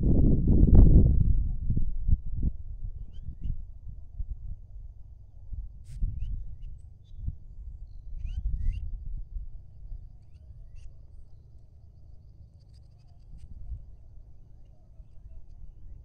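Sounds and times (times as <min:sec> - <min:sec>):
wind buffeting microphone: 0:00.0 - 0:10.9
birds chirping: 0:09.8 - 0:13.4.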